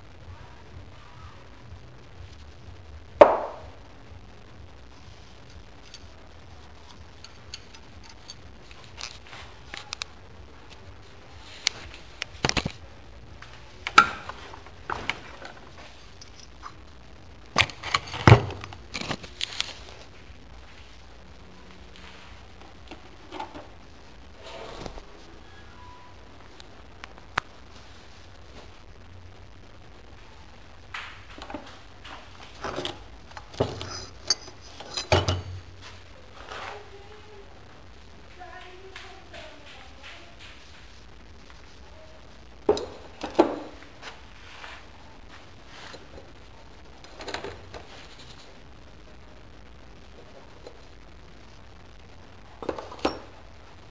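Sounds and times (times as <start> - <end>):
metal tools clanking: 33.6 - 35.6.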